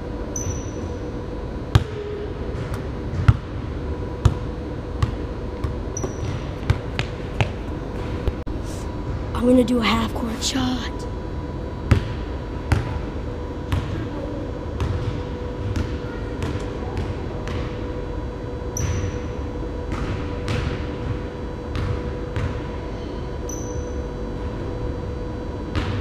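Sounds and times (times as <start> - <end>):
steady hum: 0.0 - 26.0
basketball bouncing on hardwood floor: 13.7 - 14.0, 14.8 - 17.7.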